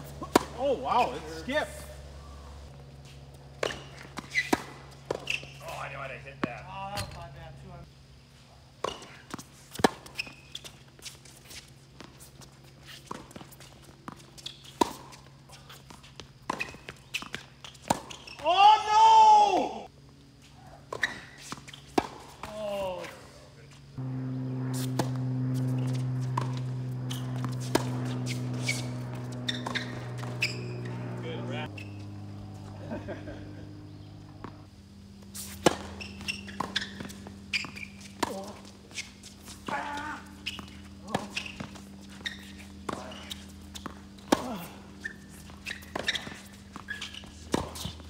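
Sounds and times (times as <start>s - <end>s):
tennis ball hits and bounces: 0.0s - 1.6s, 3.6s - 7.2s, 8.8s - 10.7s, 12.9s - 18.4s, 20.9s - 23.0s, 24.0s - 32.2s, 33.7s - 34.7s, 35.4s - 48.0s
steady low hum: 0.0s - 9.7s, 19.8s - 48.0s.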